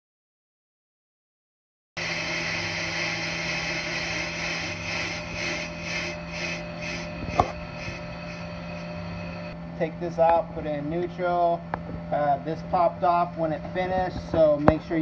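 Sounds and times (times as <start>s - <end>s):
hissing cutting noise: 2.0s - 9.6s
lathe motor hum: 2.0s - 14.4s.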